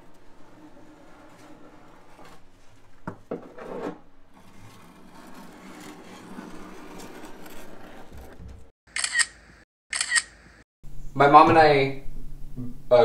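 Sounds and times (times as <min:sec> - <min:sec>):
plastic sheet scraping on fiberglass: 0:00.0 - 0:08.7.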